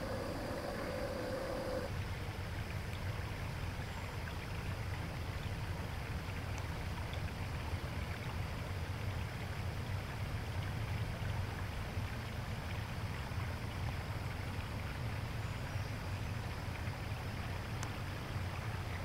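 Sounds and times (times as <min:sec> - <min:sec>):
hiss: 0:00.0 - 0:01.9
steady low rumble: 0:00.0 - 0:01.9.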